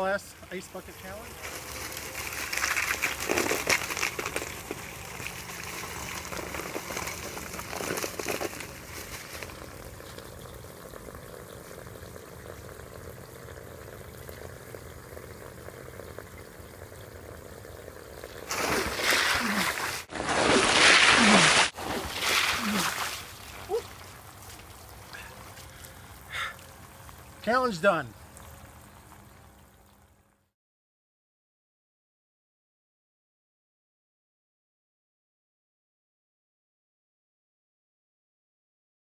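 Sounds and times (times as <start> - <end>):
water running and trickling: 0.3 - 30.3
water splashing: 0.8 - 10.6, 18.2 - 28.1
ice cubes rattling on plastic: 1.4 - 9.7.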